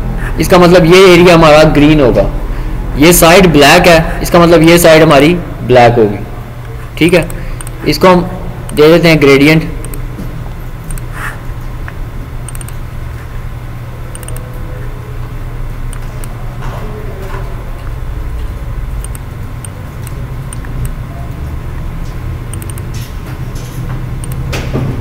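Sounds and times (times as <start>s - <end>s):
steady low hum: 0.0s - 25.0s
computer mouse clicks: 7.1s - 7.8s, 10.8s - 11.1s, 11.8s - 12.8s, 14.1s - 14.5s, 19.0s - 21.0s, 22.5s - 24.5s.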